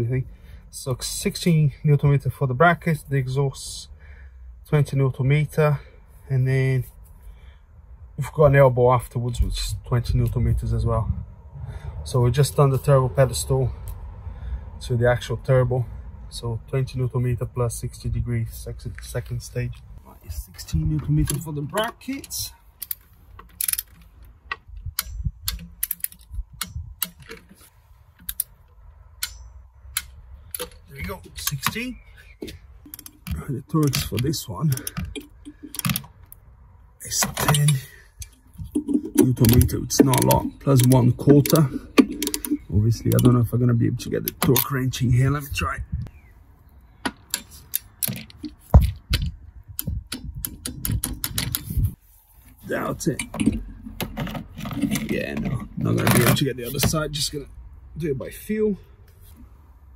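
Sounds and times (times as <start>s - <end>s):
ratchet clicking: 22.3s - 27.4s, 32.8s - 36.4s, 39.4s - 43.2s
metallic knock: 41.3s - 43.3s.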